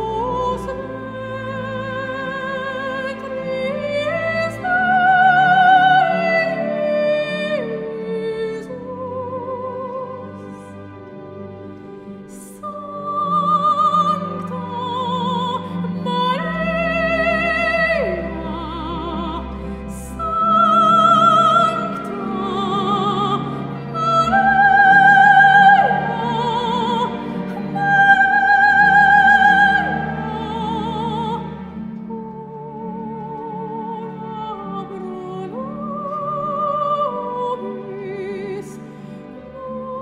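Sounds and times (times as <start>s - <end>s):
slow classical music: 0.0s - 40.0s.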